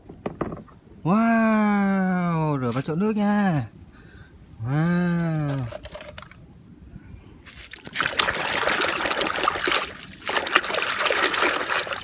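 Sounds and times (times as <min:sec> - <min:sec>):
water splashing in plastic basin: 0:07.5 - 0:12.0.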